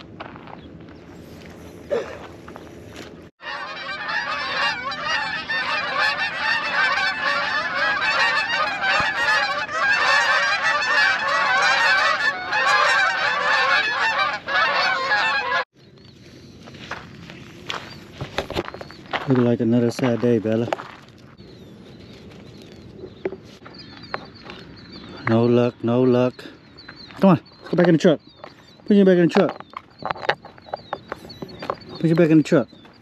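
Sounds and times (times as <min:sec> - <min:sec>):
geese honking in flight: 0:03.4 - 0:15.7.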